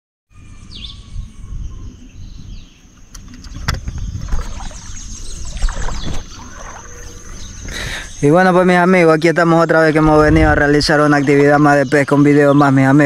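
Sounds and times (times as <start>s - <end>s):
high-pitched hum: 0.3s - 9.0s
bird chirp: 0.3s - 13.0s
wind buffeting microphone: 0.7s - 8.4s, 9.9s - 11.3s.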